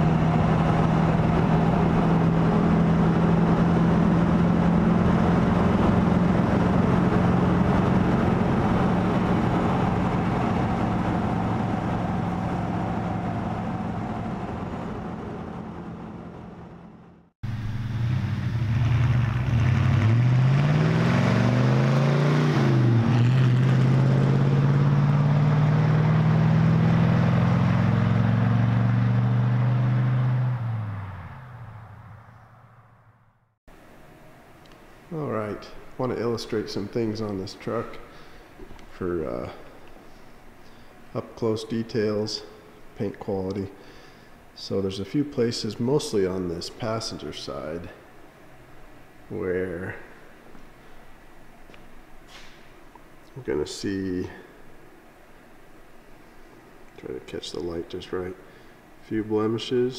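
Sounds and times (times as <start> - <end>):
truck accelerating past: 0.0 - 33.6
truck engine cruising: 0.0 - 42.2.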